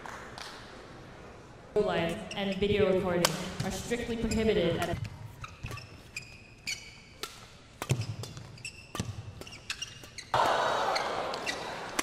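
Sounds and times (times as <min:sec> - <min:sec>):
court shoes squeaking: 0:01.8 - 0:12.0
rackets hitting shuttlecock: 0:03.2 - 0:12.0
crowd noise: 0:10.3 - 0:12.0.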